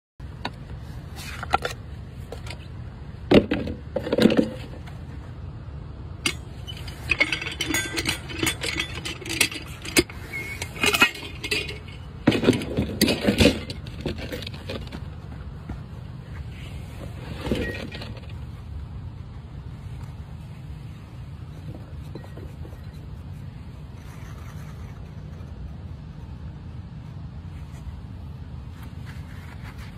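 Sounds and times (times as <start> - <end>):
metal tools clinking on metal cup: 6.2 - 14.5.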